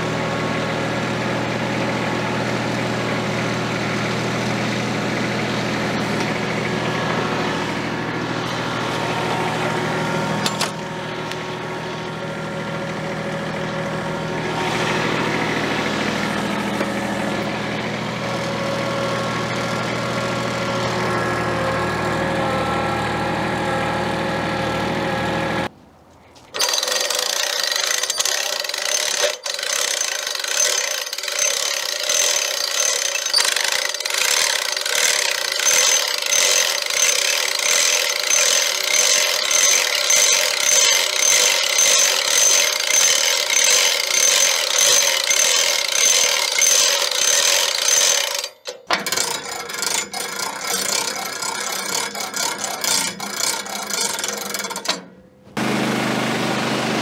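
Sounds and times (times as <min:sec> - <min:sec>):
tractor engine running: 0:00.0 - 0:25.7, 0:26.4 - 0:57.0
winch ratcheting with metallic ring: 0:26.6 - 0:55.2.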